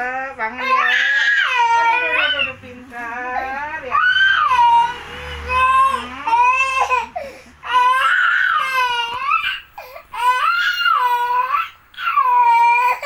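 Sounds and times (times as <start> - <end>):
baby crying: 0.6 - 2.6, 3.5 - 13.0.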